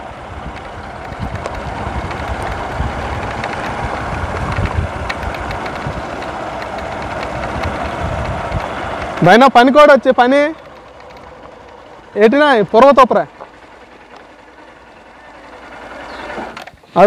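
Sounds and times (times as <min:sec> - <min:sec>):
wind noise: 0:00.0 - 0:09.2
motorcycle engine: 0:00.0 - 0:17.0.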